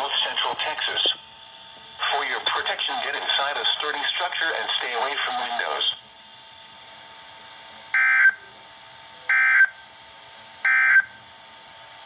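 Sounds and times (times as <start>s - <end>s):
faint radio hiss: 2.0s - 6.6s.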